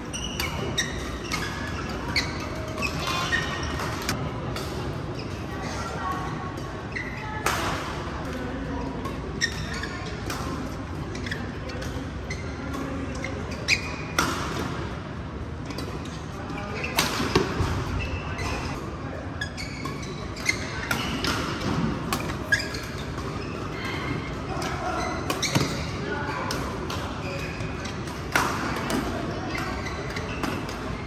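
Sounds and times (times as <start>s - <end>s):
shoe squeaks on court floor: 0.0s - 4.2s, 9.4s - 10.3s, 11.1s - 14.2s, 19.4s - 21.3s, 22.2s - 23.9s, 28.8s - 31.0s.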